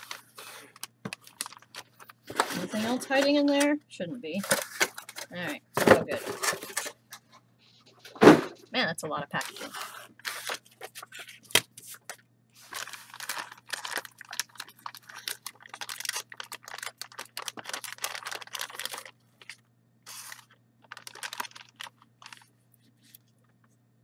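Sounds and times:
plastic bag crinkling: 0:00.0 - 0:03.6, 0:09.4 - 0:23.7.

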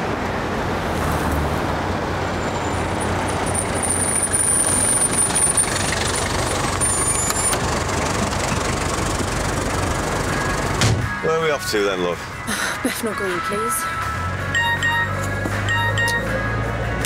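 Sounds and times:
street traffic: 0:00.0 - 0:17.0
taxi engine running: 0:03.6 - 0:10.9.

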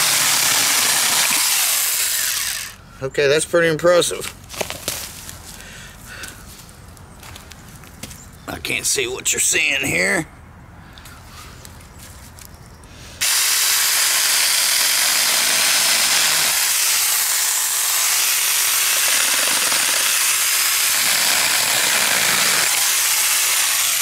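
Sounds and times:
electric chainsaw cutting branch: 0:00.0 - 0:02.8, 0:13.2 - 0:24.0.

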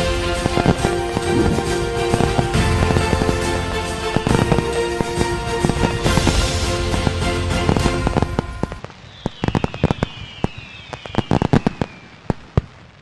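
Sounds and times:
background music: 0:00.0 - 0:08.8
fireworks whistles: 0:00.0 - 0:12.7
fireworks bangs and crackles: 0:00.0 - 0:13.0.

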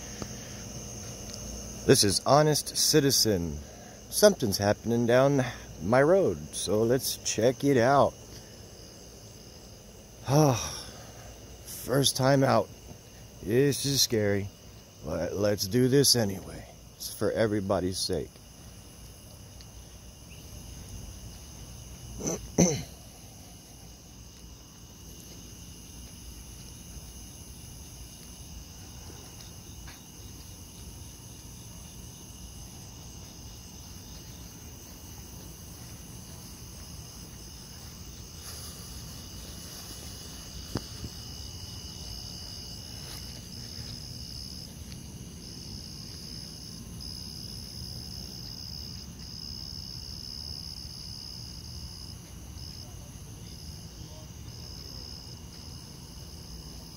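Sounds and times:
crickets trilling: 0:00.0 - 0:56.9
cough: 0:22.2 - 0:23.1.

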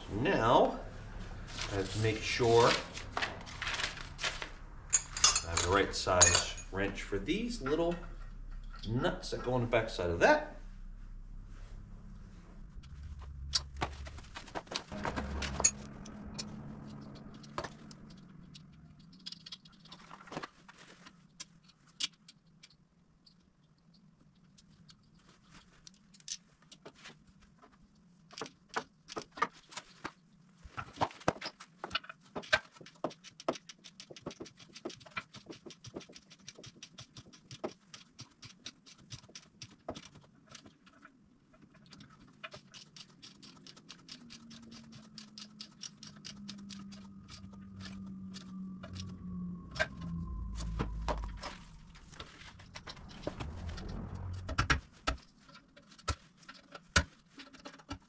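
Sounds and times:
low steady rumble: 0:00.0 - 0:20.3, 0:44.5 - 0:55.8.

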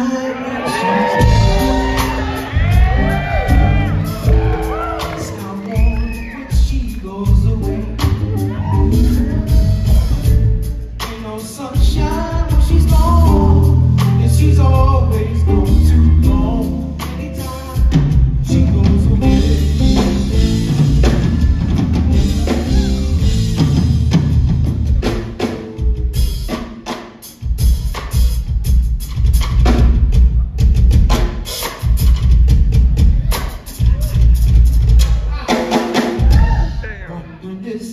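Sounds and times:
person singing: 0:00.0 - 0:23.6
drum kit solo: 0:00.6 - 0:37.1.

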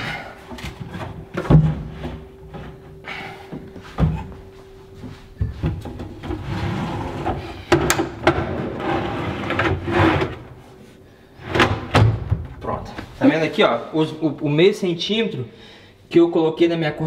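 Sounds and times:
drawer sliding and rattling: 0:05.8 - 0:10.5
loud drawer clunk: 0:11.5 - 0:12.6.

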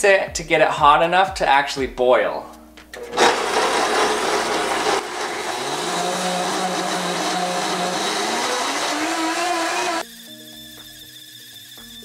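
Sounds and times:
blender motor whirring: 0:03.0 - 0:12.0.

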